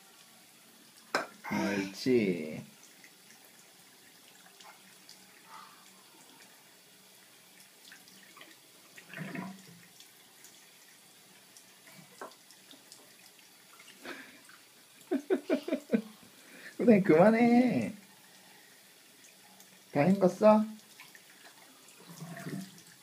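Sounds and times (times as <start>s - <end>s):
tap water running into sink: 0.9s - 1.6s, 7.1s - 16.0s, 17.1s - 23.0s.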